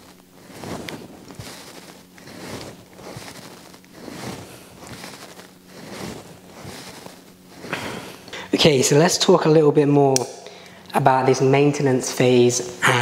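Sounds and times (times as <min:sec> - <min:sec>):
swishing of dumbbell raises: 0:00.0 - 0:08.3.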